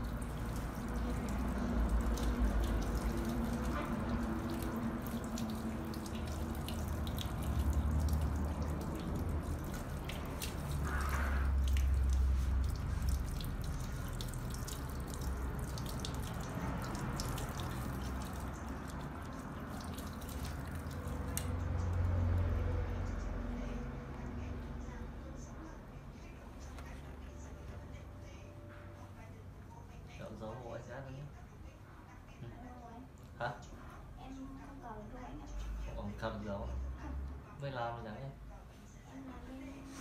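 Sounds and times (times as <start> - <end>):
tap water splashing into basin: 0.0 - 21.8.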